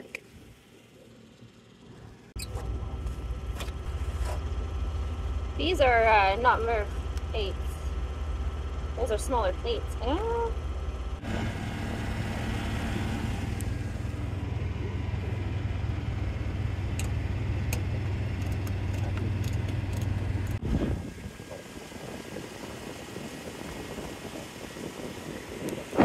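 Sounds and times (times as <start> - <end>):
hvac machinery humming: 0.0 - 26.0.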